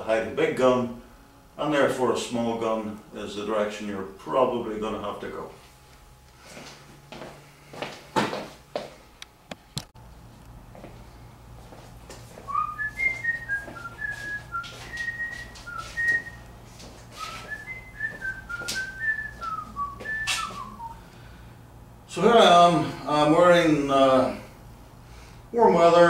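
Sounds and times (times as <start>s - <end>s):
person whistling a tune: 12.5s - 16.4s, 17.2s - 21.0s.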